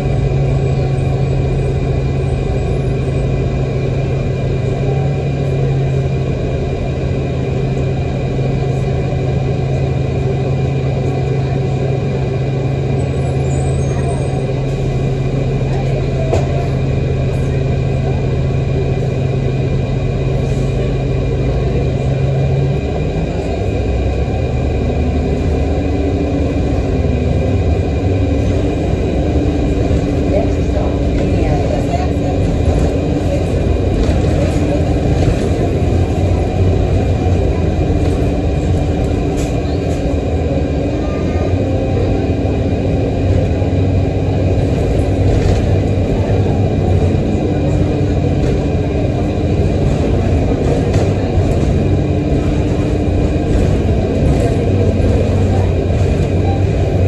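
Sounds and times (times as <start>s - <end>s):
bus diesel engine drone: 0.0s - 57.0s.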